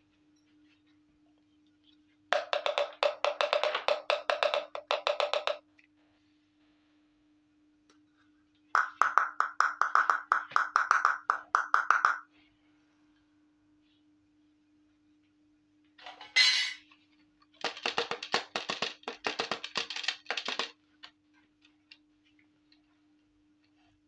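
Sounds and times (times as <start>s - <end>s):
tapping on plastic toy cookware: 2.4s - 5.6s, 8.8s - 12.2s, 17.6s - 20.7s.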